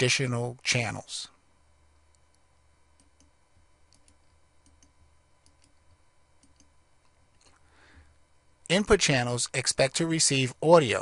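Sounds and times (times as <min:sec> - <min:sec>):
faint computer mouse clicks: 0:03.9 - 0:05.8, 0:06.4 - 0:06.7.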